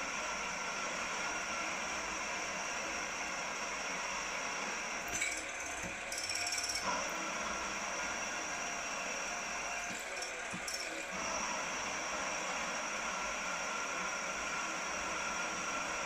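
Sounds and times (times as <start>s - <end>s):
drilling machine boring metal: 0.0s - 16.0s.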